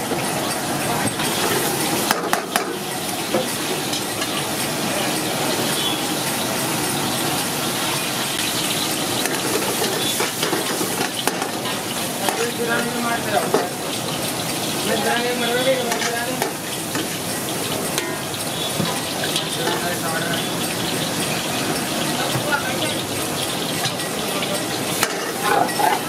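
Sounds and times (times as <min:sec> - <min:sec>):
curry sizzling in a wok: 0:00.0 - 0:26.0
metal ladle scraping a pan: 0:08.4 - 0:22.4, 0:23.3 - 0:26.0.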